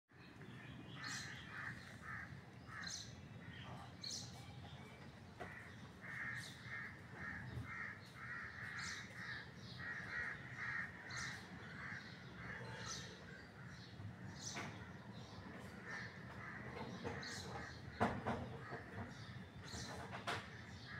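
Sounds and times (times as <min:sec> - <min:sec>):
crows cawing: 0:01.0 - 0:03.1, 0:05.4 - 0:13.8, 0:15.6 - 0:17.8.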